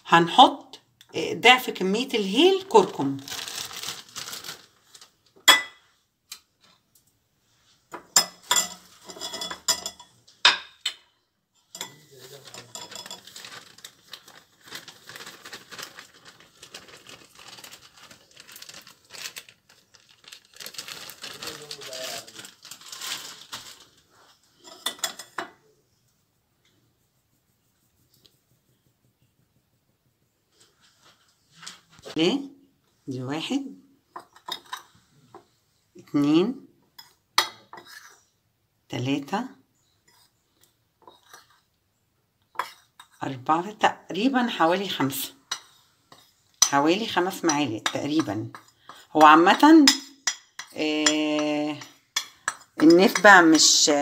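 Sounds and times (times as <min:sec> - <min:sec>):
powder rustling in a sieve: 0:01.7 - 0:05.3, 0:11.8 - 0:24.7
plastic bag crinkling: 0:02.4 - 0:05.4, 0:12.1 - 0:24.8
utensils clinking on ceramic: 0:08.0 - 0:11.0, 0:11.6 - 0:13.7, 0:24.6 - 0:25.6, 0:34.1 - 0:35.0, 0:45.0 - 0:53.8.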